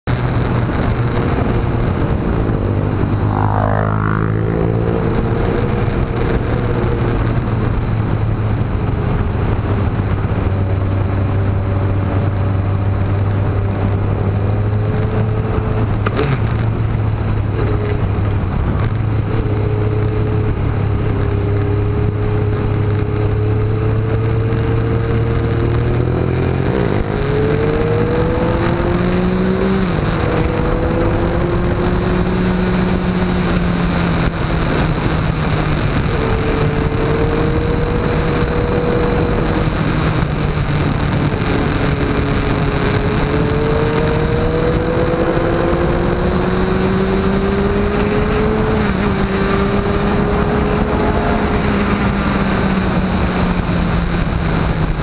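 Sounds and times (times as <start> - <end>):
motorcycle engine running: 0.0 - 55.0
wind and road noise: 0.0 - 55.0
falling pitch glide: 1.6 - 7.0.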